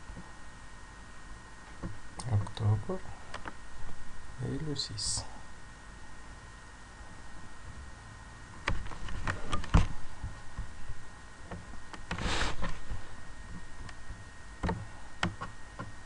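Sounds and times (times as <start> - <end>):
short hiss: 12.1 - 12.8
computer mouse clicking: 14.6 - 15.9.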